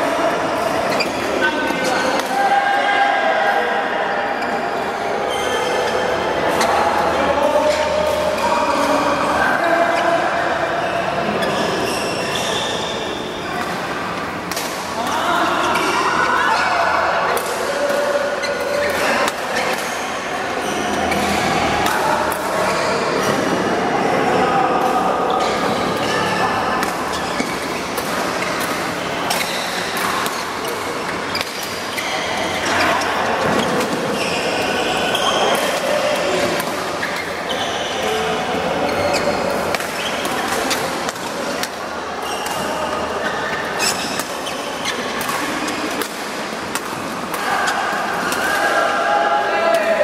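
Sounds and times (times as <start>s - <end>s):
people talking: 0.0s - 50.0s
shoe squeaks on court floor: 0.9s - 2.0s, 4.4s - 6.7s, 10.8s - 13.3s, 27.1s - 28.6s, 31.1s - 35.6s, 37.0s - 40.9s, 42.2s - 45.8s
racket hitting shuttlecock: 13.6s - 14.9s, 26.8s - 32.0s, 39.1s - 41.8s, 42.4s - 48.7s
rackets hitting shuttlecocks: 42.4s - 48.7s.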